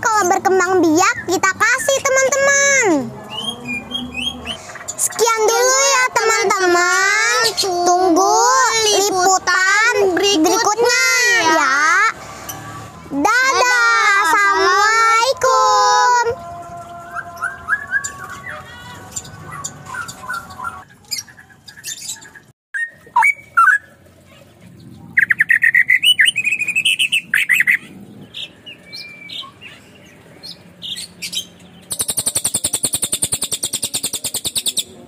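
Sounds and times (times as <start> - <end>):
songbirds chirping and singing: 0.0 - 23.9, 24.7 - 35.0
high bird trill: 0.1 - 14.8, 16.3 - 24.0.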